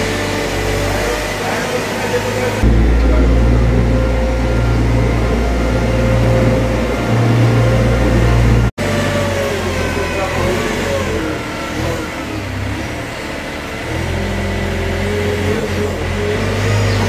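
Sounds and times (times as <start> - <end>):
diesel loader engine under load: 2.6 - 9.0.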